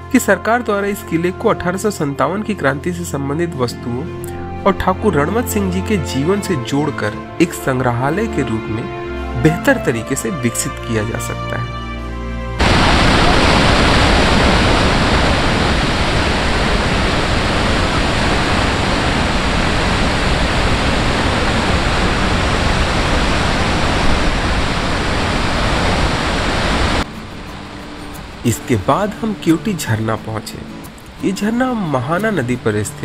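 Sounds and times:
waterfall rushing: 12.6s - 33.0s.

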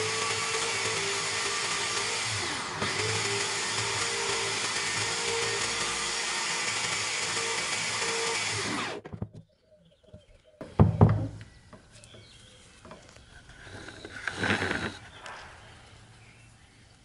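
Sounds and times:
drill spinning down whine: 0.0s - 9.0s
electric drill running: 0.0s - 9.0s, 13.8s - 15.0s.

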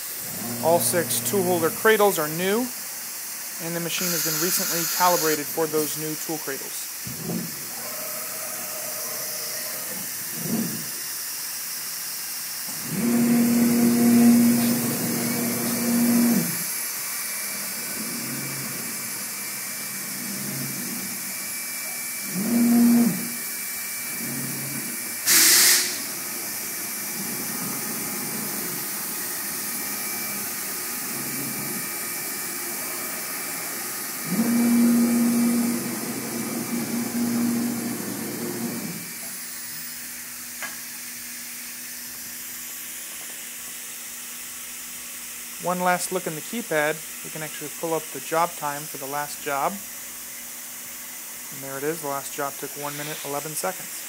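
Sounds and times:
router spindle high hiss: 0.0s - 54.0s
servo drives low hum: 0.2s - 2.0s, 12.7s - 16.6s, 19.8s - 23.4s, 29.7s - 39.4s.

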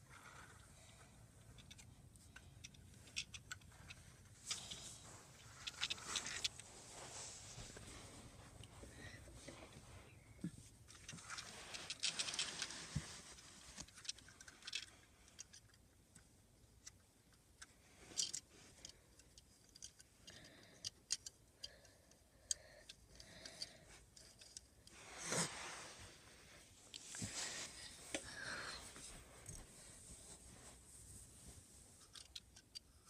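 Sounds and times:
rustling: 0.0s - 15.7s, 22.7s - 33.0s
small plastic clicks: 0.2s - 6.5s, 13.8s - 25.0s, 32.0s - 33.0s.

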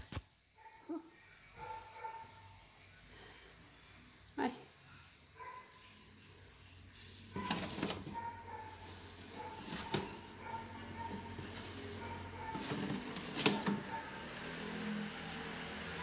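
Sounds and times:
baking tray scraping over rack: 7.4s - 16.0s
steady hiss: 8.5s - 10.4s.

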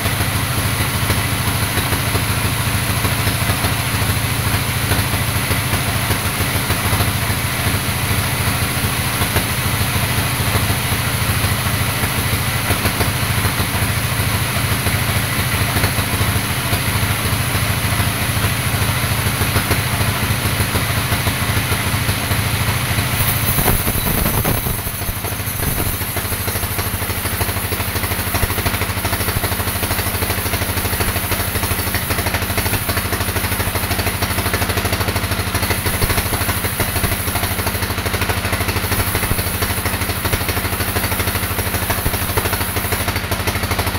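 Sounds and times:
band saw cutting log: 23.2s - 43.1s.

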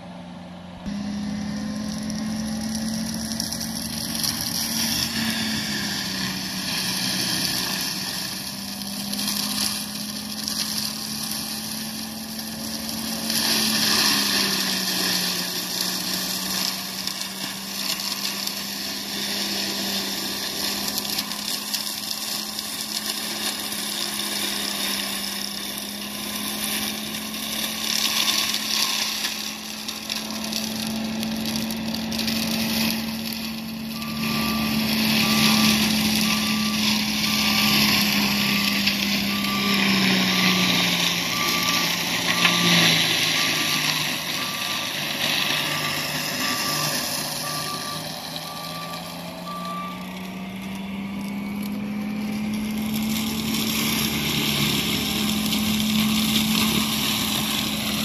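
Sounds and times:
diesel loader mulching brush: 0.0s - 58.0s
backup alarm beeping: 34.0s - 40.7s, 41.3s - 50.2s.

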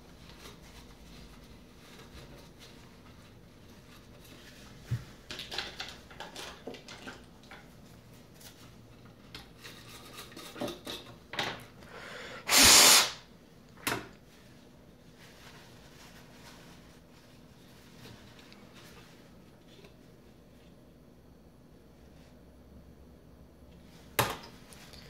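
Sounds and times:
loud hiss: 12.2s - 13.2s
burst of noise: 12.5s - 13.2s.

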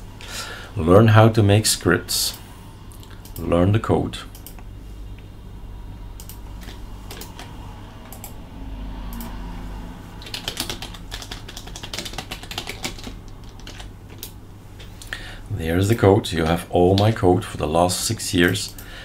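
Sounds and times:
typing on computer keyboard: 6.2s - 7.5s, 10.2s - 14.4s.

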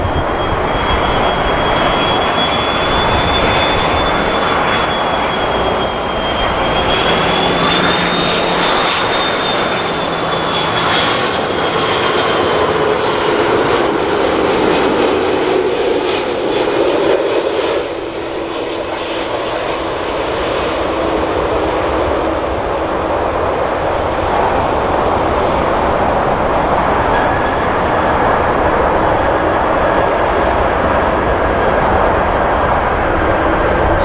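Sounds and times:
jet engine roar with whine: 0.0s - 34.0s.

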